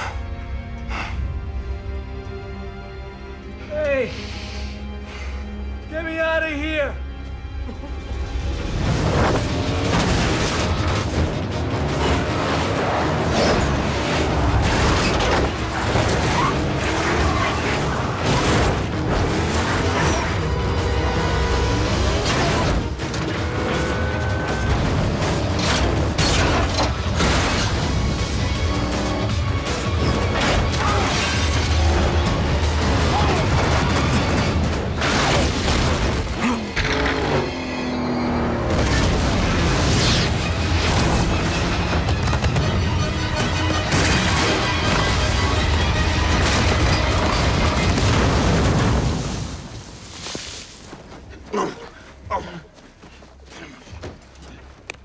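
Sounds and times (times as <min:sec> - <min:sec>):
driving film music score: 0:00.0 - 0:49.9
car engines racing: 0:36.3 - 0:43.6.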